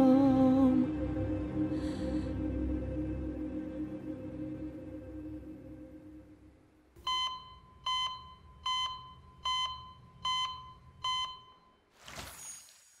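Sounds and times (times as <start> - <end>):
alarm clock beeping: 7.0 - 11.8.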